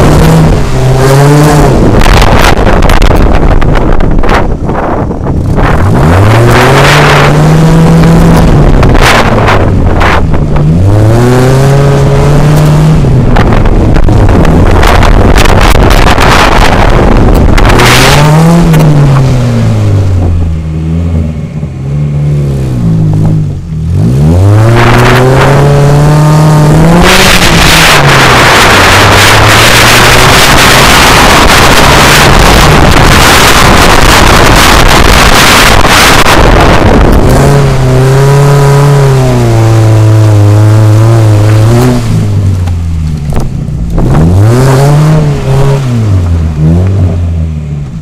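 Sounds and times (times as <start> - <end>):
car engine revving: 0.0 - 48.0.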